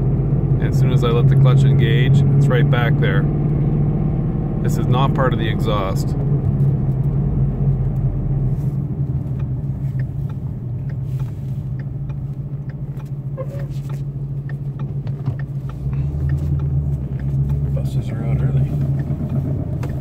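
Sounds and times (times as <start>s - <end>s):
car engine low drone: 0.0s - 20.0s
faint irregular rubbing clicks: 7.9s - 20.0s.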